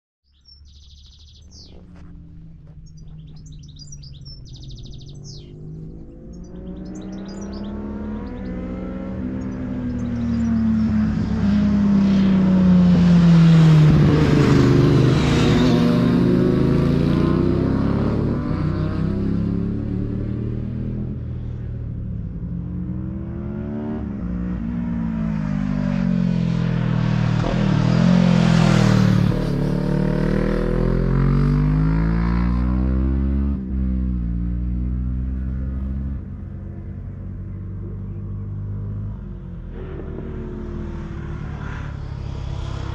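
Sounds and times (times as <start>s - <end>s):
birds chirping: 0.3s - 11.7s
motorcycles revving past: 3.3s - 42.9s.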